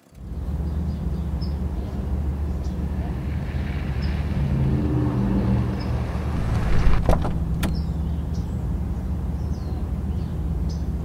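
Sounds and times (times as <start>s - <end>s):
car engine idling: 5.6s - 11.0s
car door clunking: 6.3s - 8.0s.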